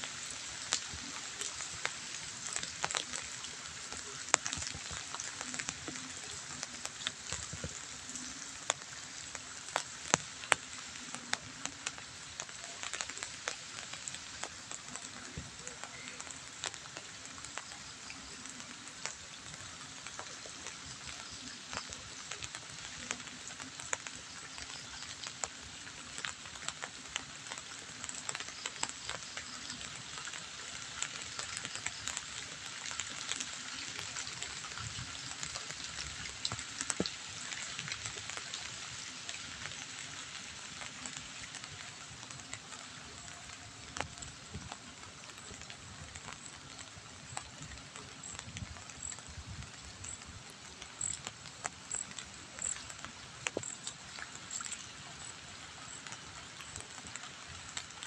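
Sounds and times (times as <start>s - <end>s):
drizzle pattering on leaves: 0.0s - 58.0s.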